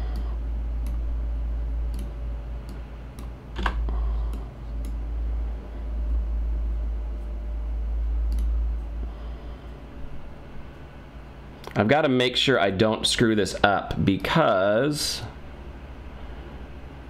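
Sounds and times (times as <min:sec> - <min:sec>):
steady low hum: 0:00.0 - 0:17.0
sharp computer clicks: 0:01.8 - 0:05.0, 0:08.2 - 0:08.6.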